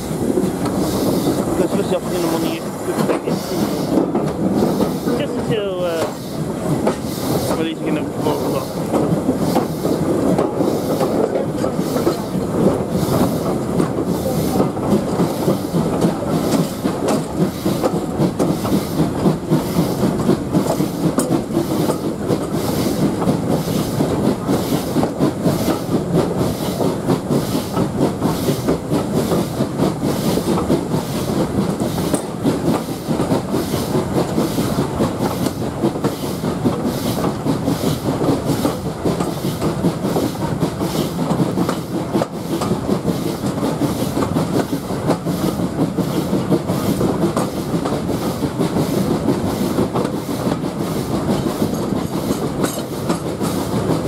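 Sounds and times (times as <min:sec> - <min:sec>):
steam train wheels clattering on rail: 0:00.0 - 0:54.0.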